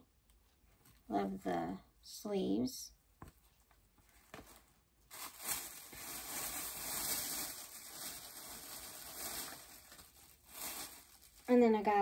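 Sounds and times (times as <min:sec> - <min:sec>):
plastic bag crinkling: 0:04.4 - 0:12.0.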